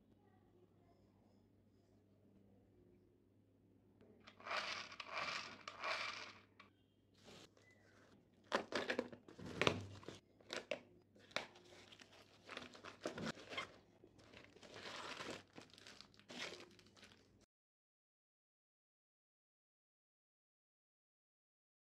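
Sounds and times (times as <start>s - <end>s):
cardboard parcel tearing and crumpling: 11.2s - 17.3s.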